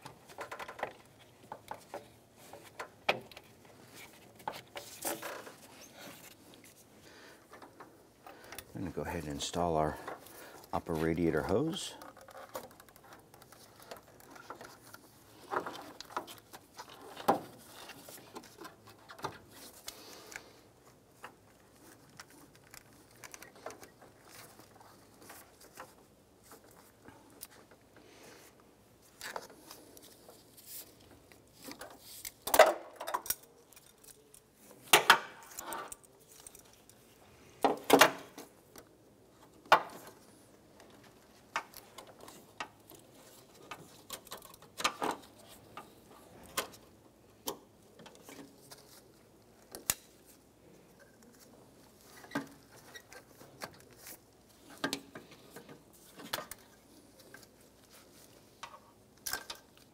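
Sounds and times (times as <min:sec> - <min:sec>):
clicks and knocks of hand work: 0:00.0 - 0:06.4, 0:11.5 - 0:20.5.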